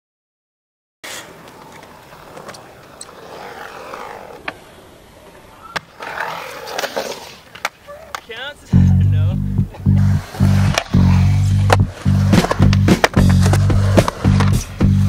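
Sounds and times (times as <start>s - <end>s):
skateboard wheels rolling on concrete: 1.0s - 8.9s, 9.6s - 15.0s
skateboard clacking on concrete: 5.6s - 8.4s, 11.6s - 14.7s.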